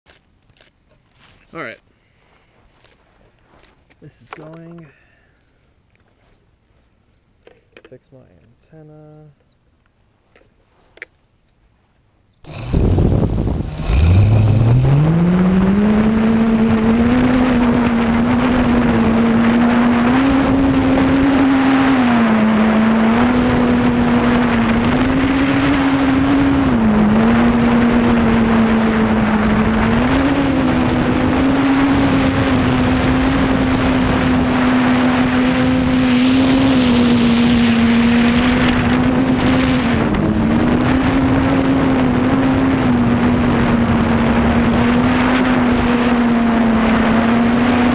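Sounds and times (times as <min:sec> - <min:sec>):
quadcopter motors humming: 0:12.4 - 0:47.9.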